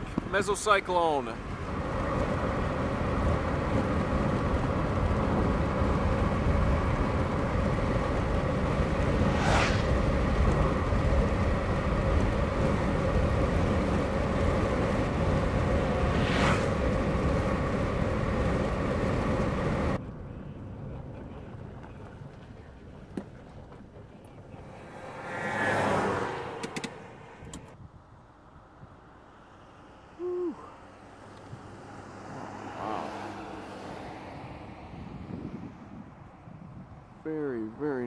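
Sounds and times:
wind buffeting microphone: 0:01.4 - 0:29.0, 0:34.2 - 0:37.5
brief swishes: 0:09.2 - 0:10.0, 0:16.0 - 0:16.8.

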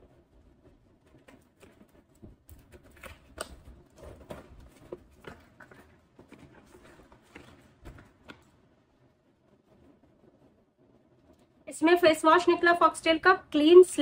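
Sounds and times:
cardboard parcel being opened: 0:01.1 - 0:08.7.

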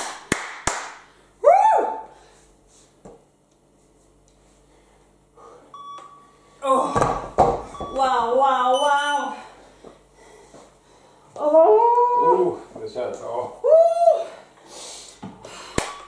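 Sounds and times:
short electronic beep: 0:05.8 - 0:06.4, 0:07.7 - 0:08.2.

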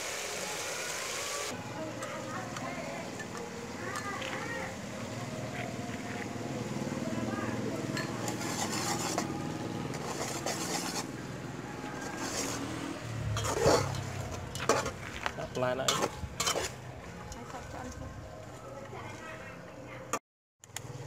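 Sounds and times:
spatula scraping metal pot: 0:07.9 - 0:11.3, 0:12.0 - 0:16.8
spatula clanking against pot: 0:15.9 - 0:16.7.

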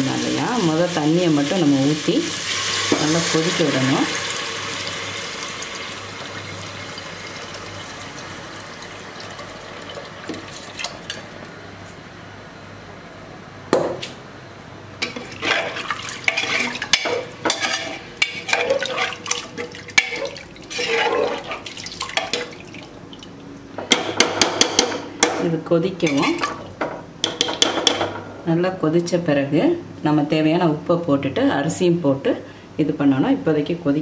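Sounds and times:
water pouring into a pot: 0:02.3 - 0:11.2
ladle stirring liquid: 0:06.2 - 0:11.4, 0:15.0 - 0:23.5
steel ladle clinking against pot: 0:16.3 - 0:21.5.

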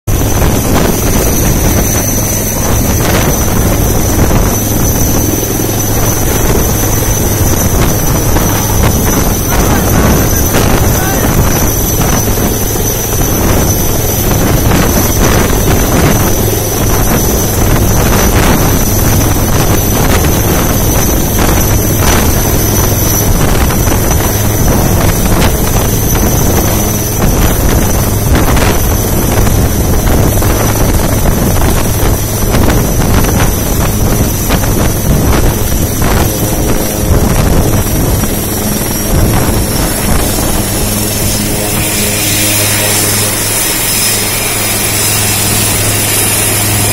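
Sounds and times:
helicopter turbine whine: 0:00.0 - 0:46.9
rotor downwash buffeting microphone: 0:00.1 - 0:46.9
low rotor beat: 0:34.9 - 0:46.9.

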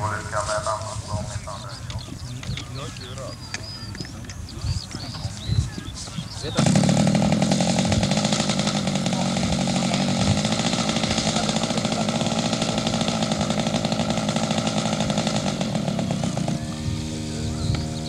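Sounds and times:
model aircraft engine buzzing: 0:05.7 - 0:18.0.

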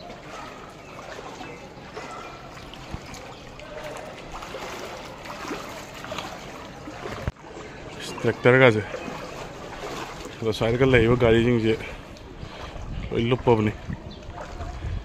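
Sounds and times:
water sloshing around legs: 0:00.0 - 0:15.0.

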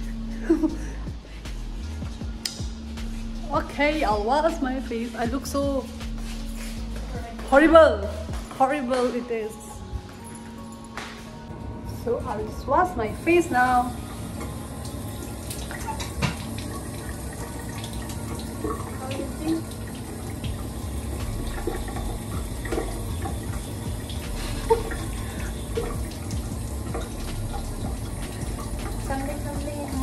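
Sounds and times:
tap water running into a sink: 0:13.2 - 0:30.0
water splashing: 0:13.9 - 0:30.0.

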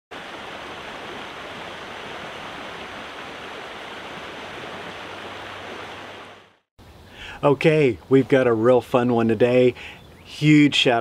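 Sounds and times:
stream splashing over rocks: 0:00.1 - 0:06.6.

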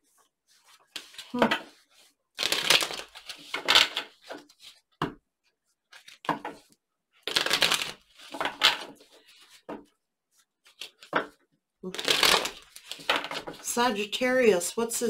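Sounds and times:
cards being shuffled: 0:00.7 - 0:04.8, 0:05.9 - 0:09.8, 0:10.6 - 0:11.3, 0:11.9 - 0:13.6.

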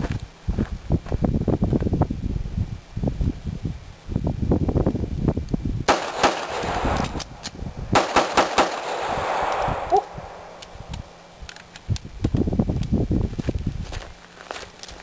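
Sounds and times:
pistol shots: 0:05.9 - 0:10.8.

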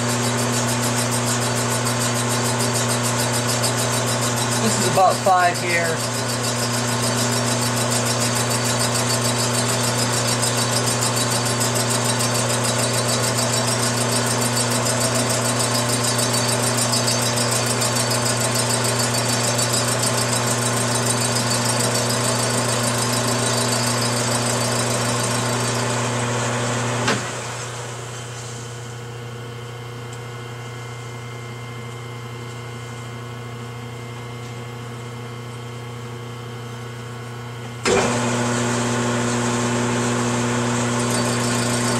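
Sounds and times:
metal lathe running: 0:00.0 - 0:27.0, 0:37.8 - 0:41.9.

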